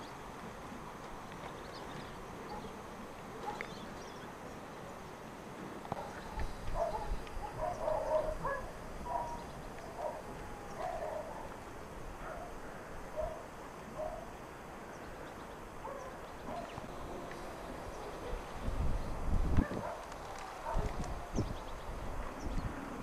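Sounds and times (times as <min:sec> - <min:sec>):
background hiss: 0:00.0 - 0:23.0
dog barking: 0:03.4 - 0:03.7, 0:06.0 - 0:09.4, 0:10.0 - 0:11.6, 0:12.2 - 0:12.6, 0:13.2 - 0:14.3, 0:15.8 - 0:16.8, 0:19.6 - 0:21.0.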